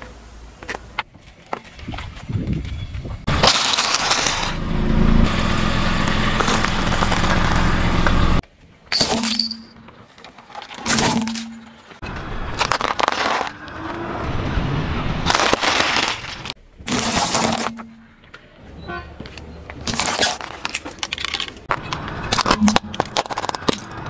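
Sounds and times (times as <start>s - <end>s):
low car hum: 3.2s - 8.4s
toys crunching under car tyre: 3.3s - 4.6s, 6.0s - 8.2s, 9.9s - 14.3s, 15.2s - 18.4s, 19.2s - 24.0s.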